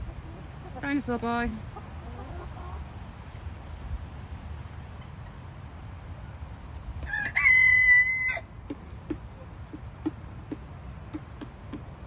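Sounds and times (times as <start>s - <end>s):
rooster crowing: 7.0s - 8.5s.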